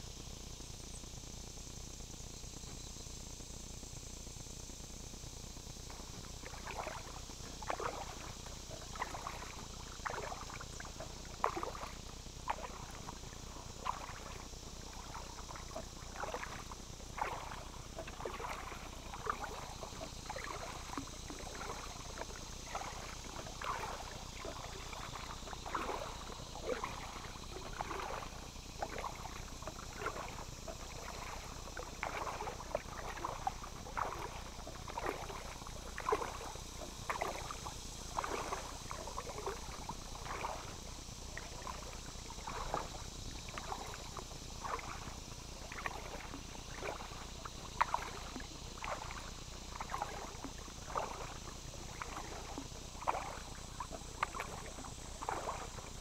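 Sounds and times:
insects buzzing: 0.0 - 56.0
paddle splashing in water: 5.9 - 56.0.

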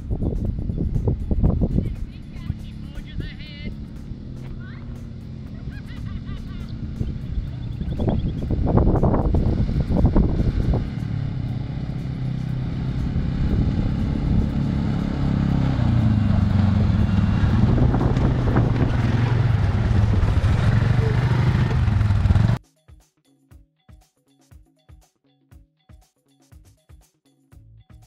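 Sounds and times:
soft plucked music: 0.0 - 19.2
quad bike engines: 0.0 - 22.6.

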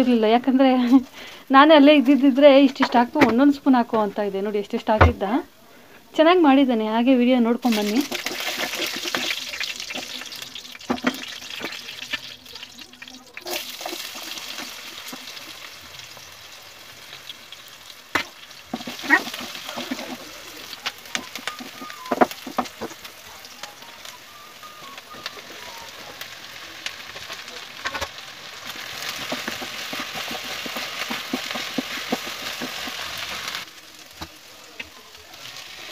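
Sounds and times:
seeds sizzling in hot oil: 7.4 - 35.9
spoon knocking against pan: 21.0 - 23.0.

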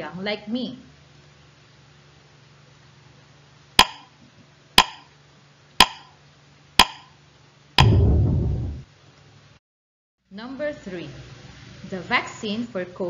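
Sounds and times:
low time-up sound: 7.8 - 8.8.

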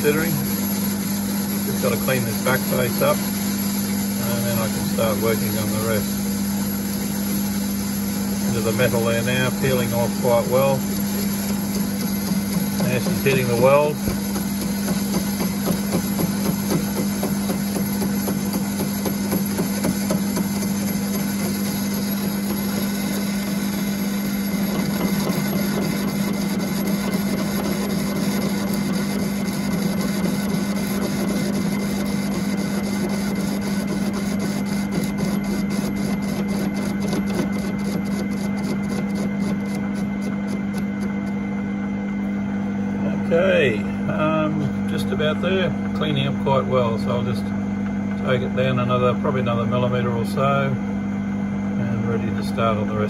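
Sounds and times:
lathe motor humming: 0.0 - 53.0
cutting tool scraping steel: 8.5 - 41.4.

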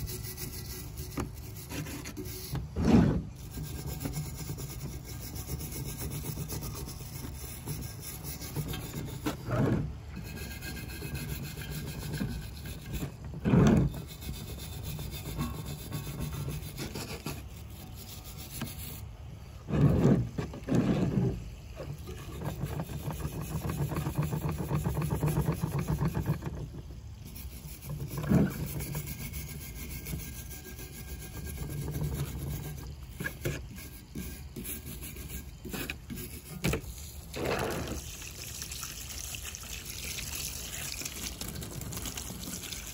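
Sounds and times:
brush rasping on metal: 0.0 - 38.1
brush scraping metal: 0.0 - 38.2.

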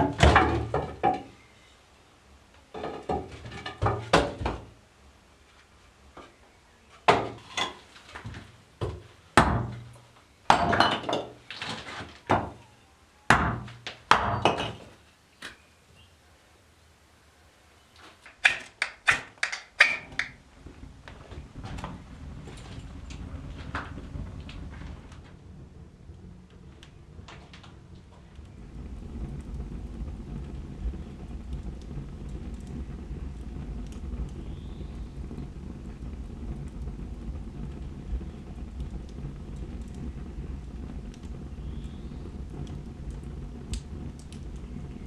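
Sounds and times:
firewood logs knocking: 0.0 - 1.3, 2.8 - 4.7, 7.1 - 11.4, 13.3 - 14.9
fire crackling: 0.0 - 45.0
wood fire burning: 0.0 - 45.0.

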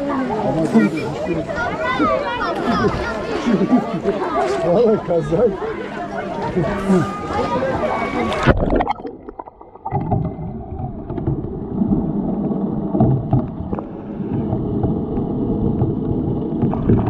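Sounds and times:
underwater rumbling water wash: 7.2 - 17.0
underwater clicks and knocks: 8.3 - 17.0.

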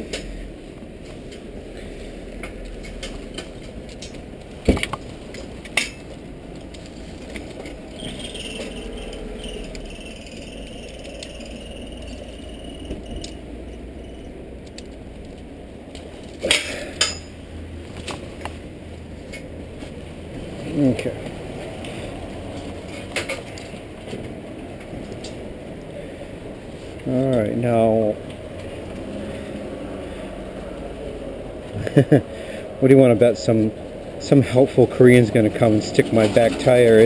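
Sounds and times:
background noise: 0.0 - 37.0
bike lock clanking and rattling: 16.4 - 17.3
sharp metal knocks: 16.4 - 17.3.

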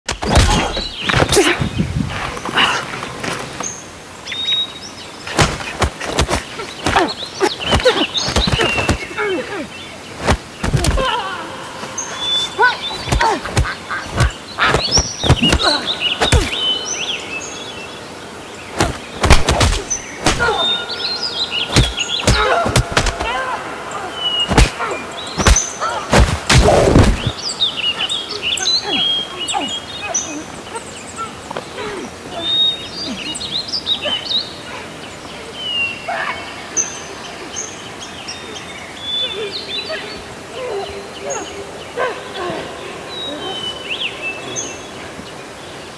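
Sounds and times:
birds chirping: 0.1 - 45.9
steady outdoor hiss: 0.1 - 45.9
fight hits and swishes: 13.0 - 16.6, 18.8 - 20.6, 21.7 - 23.4, 24.5 - 24.8, 25.4 - 27.3.

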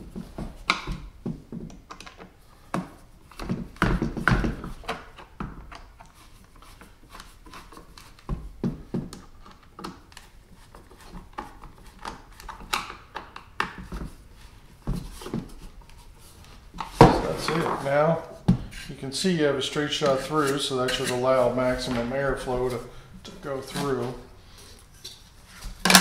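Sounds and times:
plastic parts clicking and knocking: 0.3 - 6.2, 6.8 - 14.2.

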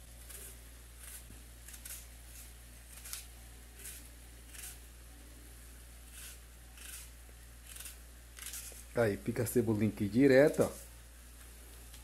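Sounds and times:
low steady hum: 0.0 - 12.0
knife slicing onion: 0.1 - 4.9, 6.0 - 9.0.

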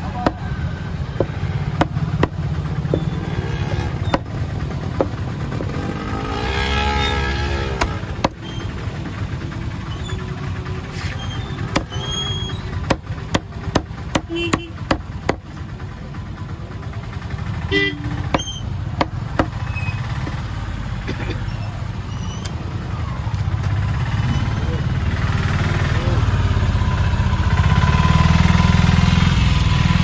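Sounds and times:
low traffic rumble: 0.0 - 30.0
cleaver chopping on wooden block: 0.2 - 0.4, 1.2 - 4.3, 4.9 - 5.7, 7.8 - 8.4, 11.7 - 12.0, 12.8 - 15.4, 18.3 - 19.5.

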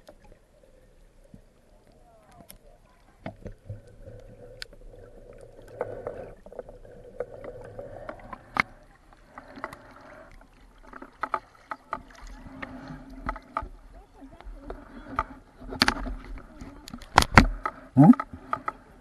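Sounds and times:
muffled underwater noise: 0.0 - 19.0.

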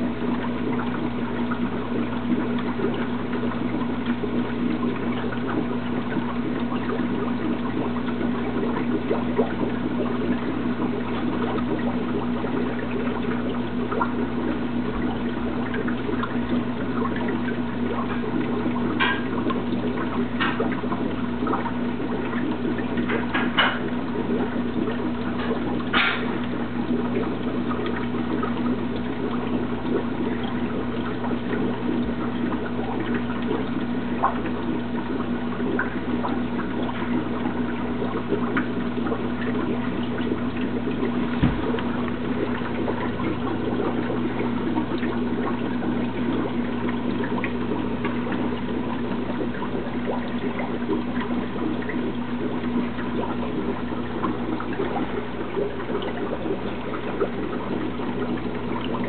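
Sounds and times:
low motor hum: 0.0 - 59.0
water trickling and splashing: 0.0 - 59.0
short knock: 41.4 - 41.7.

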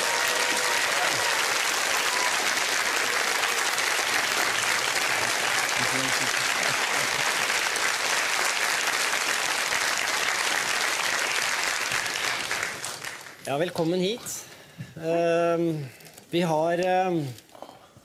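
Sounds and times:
audience applauding: 0.0 - 13.5.

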